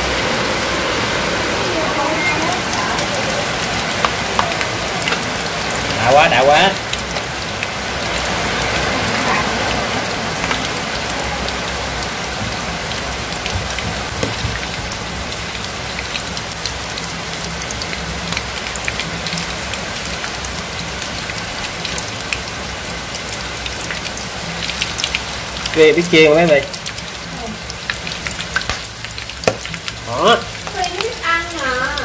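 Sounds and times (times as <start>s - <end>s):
oil sizzling with pops: 3.8s - 8.2s, 24.6s - 32.0s.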